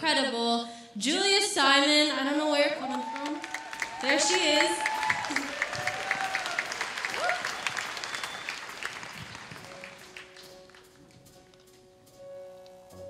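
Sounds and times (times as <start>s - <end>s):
audience cheering: 2.7s - 10.0s
audience applauding: 2.8s - 10.9s
soft held instrumental notes: 9.2s - 13.0s.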